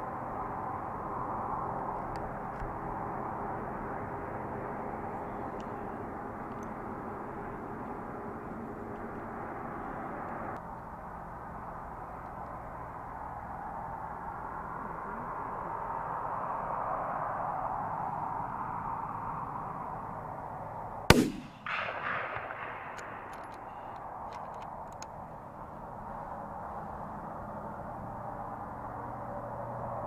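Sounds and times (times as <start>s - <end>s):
steady background hiss: 0.0s - 29.7s
rifle shot with echo: 21.1s - 23.9s.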